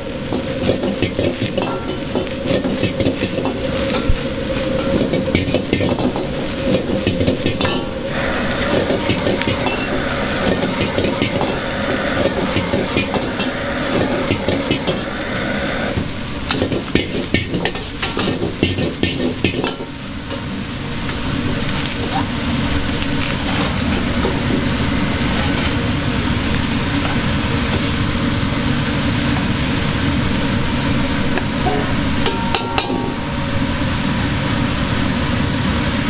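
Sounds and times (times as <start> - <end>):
steady hum: 0.0 - 16.6, 28.5 - 36.0
rice sizzling in a wok: 0.0 - 36.0
metal ladle scraping pan: 4.7 - 19.8.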